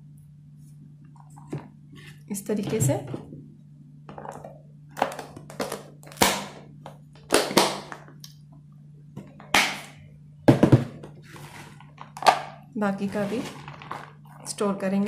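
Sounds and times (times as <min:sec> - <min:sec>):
plastic containers knocking: 0:10.5 - 0:11.2.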